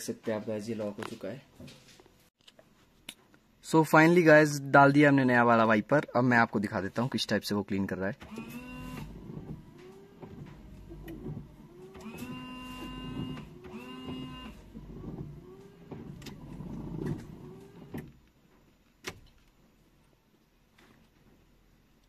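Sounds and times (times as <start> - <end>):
windshield wiper motor whining: 8.2 - 18.2.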